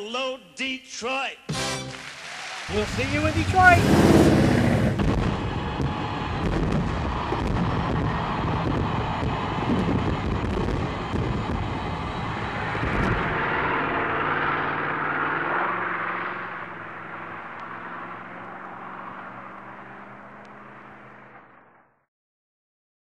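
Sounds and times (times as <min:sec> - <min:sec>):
fireworks booming and crackling: 0:03.9 - 0:13.6.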